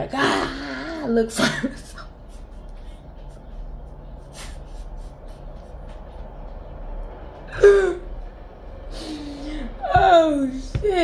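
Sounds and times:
woman breathing: 8.8 - 9.8.

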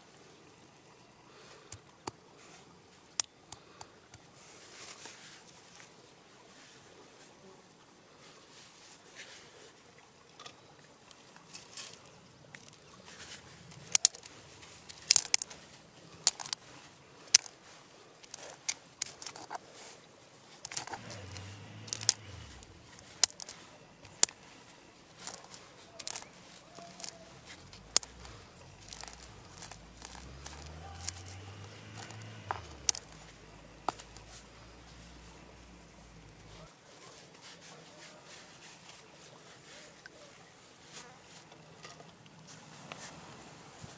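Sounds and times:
seeds cracked with a stone: 13.8 - 15.6, 16.2 - 16.6, 17.3 - 17.6, 18.2 - 19.6, 20.6 - 34.9.

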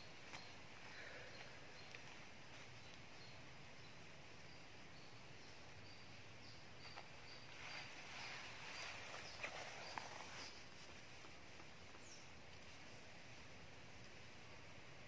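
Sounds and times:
soft hiss: 0.0 - 15.0.

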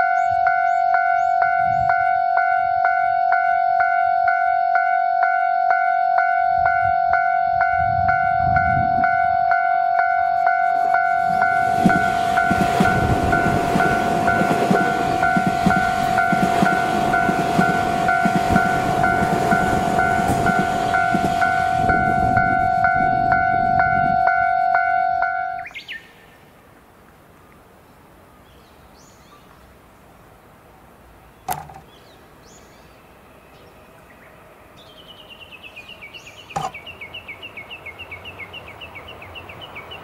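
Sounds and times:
level crossing warning bell: 0.0 - 25.7
train wheels clattering on rails: 11.0 - 23.4.

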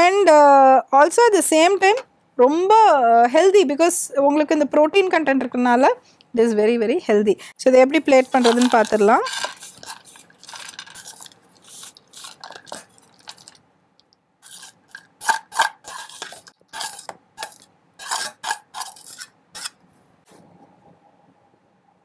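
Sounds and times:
spoon scraping a bowl: 8.0 - 13.6, 14.4 - 19.8.

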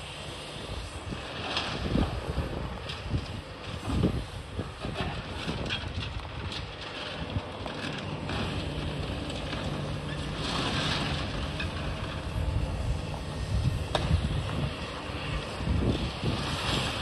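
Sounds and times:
excavator running: 0.0 - 17.0
wind buffeting microphone: 0.6 - 7.6, 9.7 - 17.0
concrete debris crunching: 4.9 - 12.5.

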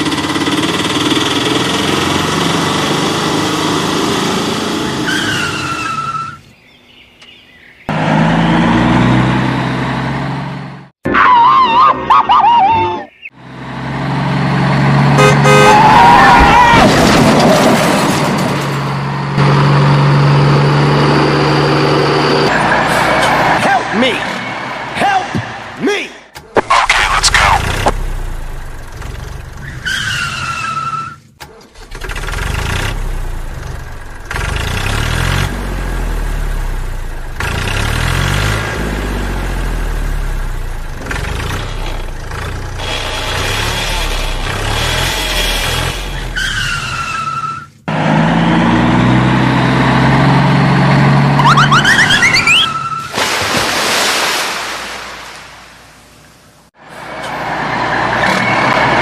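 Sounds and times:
engine starting and running: 0.0 - 5.8, 26.4 - 53.4
short falling squeal: 51.4 - 53.1.

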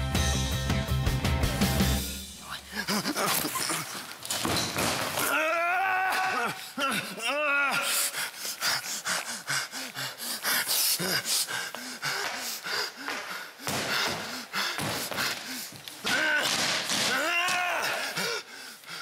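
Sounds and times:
man sniffing and grunting: 7.9 - 15.8.

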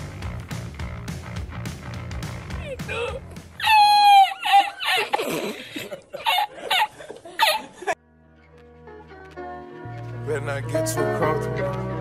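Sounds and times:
man laughing hard: 3.6 - 8.0.

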